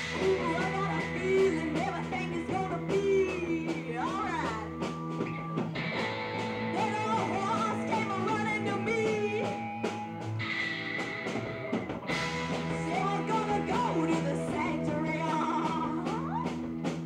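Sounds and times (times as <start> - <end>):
woman singing lead: 0.0 - 5.0, 6.7 - 10.0, 12.6 - 16.7
bass guitar: 0.0 - 17.0
distorted electric guitars: 0.0 - 17.0
drum kit: 0.0 - 17.0.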